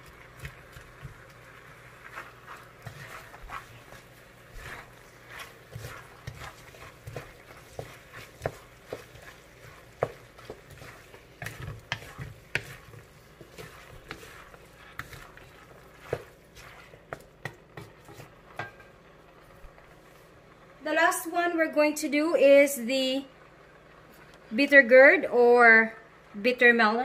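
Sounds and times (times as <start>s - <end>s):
utensil scraping frying pan: 0.0s - 19.0s
frying sizzle: 0.0s - 21.4s.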